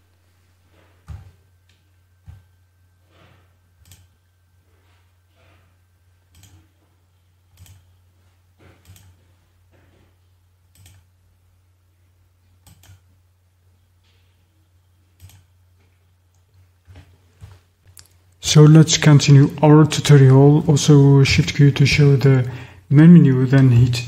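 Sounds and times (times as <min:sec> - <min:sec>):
low electrical hum: 0:00.0 - 0:24.0.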